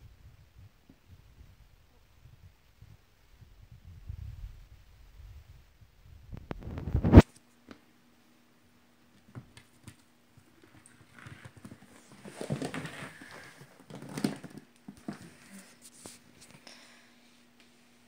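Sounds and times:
kittens scuffling on tiled floor: 9.1 - 16.6.

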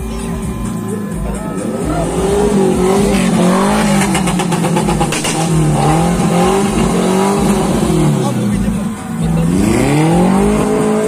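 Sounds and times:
truck engine revving: 0.0 - 11.0.

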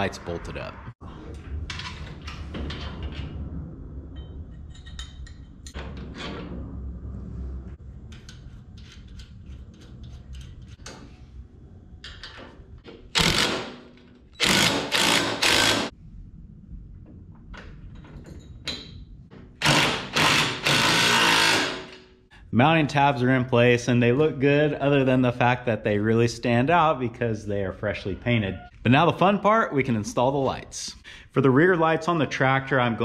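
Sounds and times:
impact driver bursts: 13.2 - 13.8, 14.4 - 15.9, 19.6 - 21.9.

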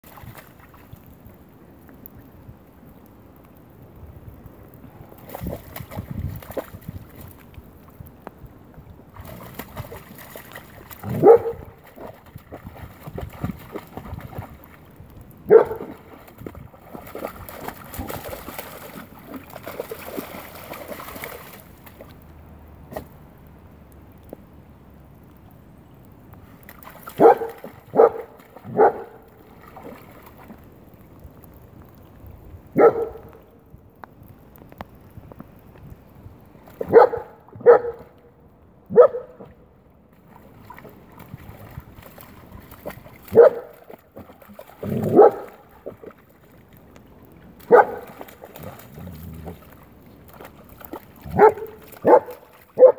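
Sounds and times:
dog splashing through puddle: 0.0 - 1.2, 4.9 - 7.8, 9.0 - 23.2, 26.5 - 31.7, 36.6 - 38.1, 39.1 - 52.9
dog barking: 11.1 - 11.7, 15.5 - 15.9, 27.2 - 29.2, 32.8 - 33.3, 36.8 - 38.1, 38.9 - 39.4, 43.3 - 43.7, 45.1 - 45.5, 47.7 - 48.0, 51.3 - 52.9.

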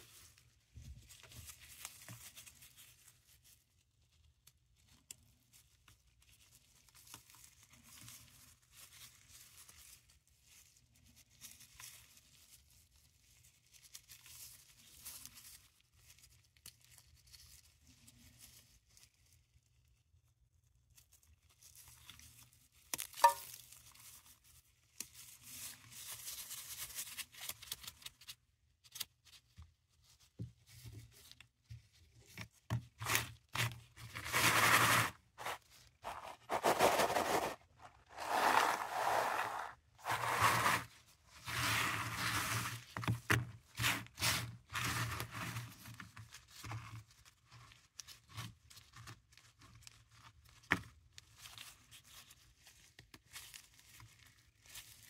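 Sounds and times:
tablets being crushed and ground: 34.8 - 40.8.

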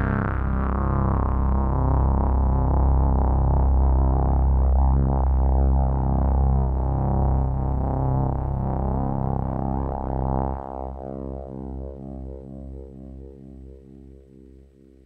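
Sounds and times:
synthesizer playing a held chord: 0.0 - 2.3.

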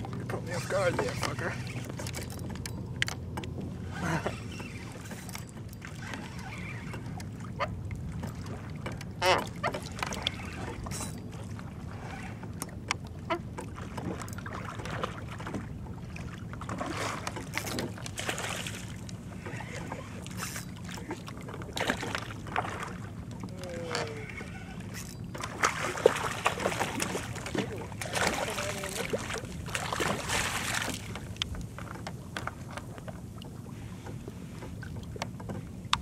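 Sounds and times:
gear clicks and knocks: 0.0 - 3.7
water and wind noise: 0.0 - 36.0.

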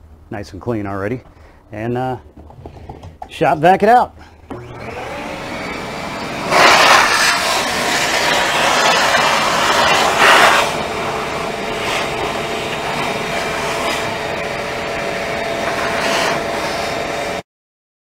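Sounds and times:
shop vac sucking debris: 4.5 - 17.4.

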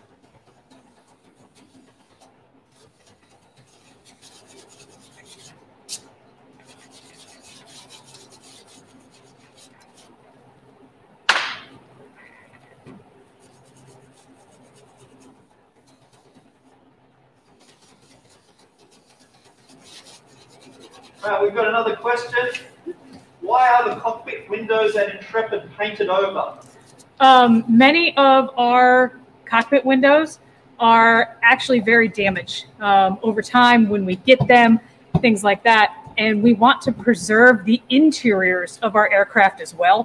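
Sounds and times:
hand scraping and rubbing: 0.0 - 10.4, 12.2 - 16.8, 17.4 - 25.6.

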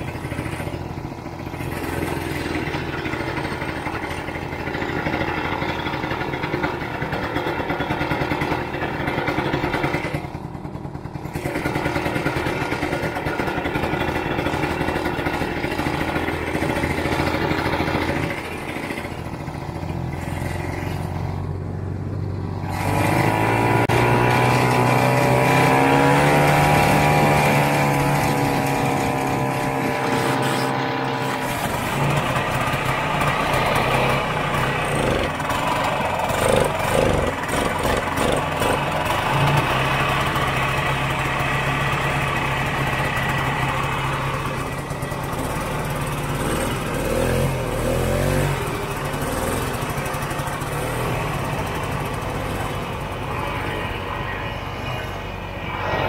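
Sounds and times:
snowmobile engine running: 0.0 - 56.0.

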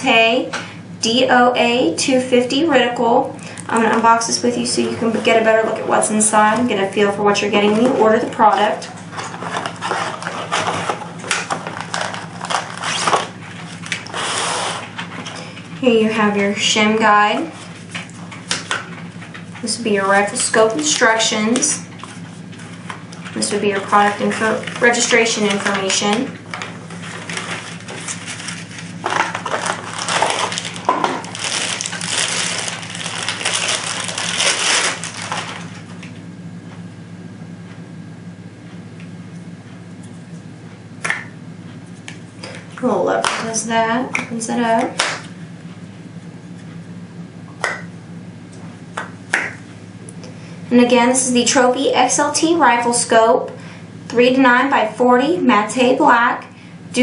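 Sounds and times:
paper crinkling and rustling: 9.0 - 15.3, 22.0 - 36.1.

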